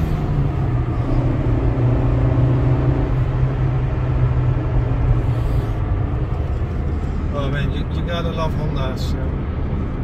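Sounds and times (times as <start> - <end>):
car engine and tyre drone: 0.0 - 10.0.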